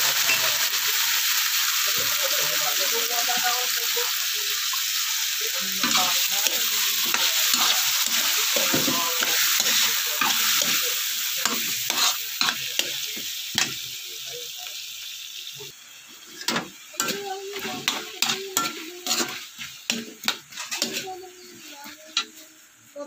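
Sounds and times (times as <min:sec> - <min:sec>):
food sizzling in oil: 0:00.0 - 0:23.0
spatula scraping and tapping pan: 0:11.5 - 0:13.0, 0:16.3 - 0:22.4.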